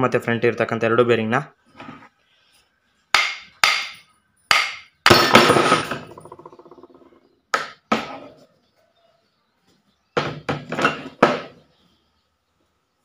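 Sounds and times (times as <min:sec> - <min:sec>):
hammer striking metal shaft: 0:03.2 - 0:06.0.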